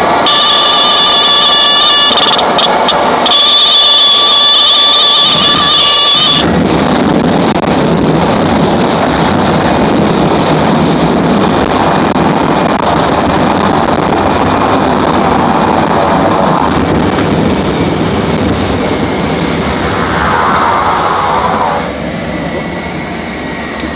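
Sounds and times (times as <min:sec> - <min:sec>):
propeller plane engine running: 0:00.0 - 0:23.9
low rumble: 0:06.4 - 0:23.9.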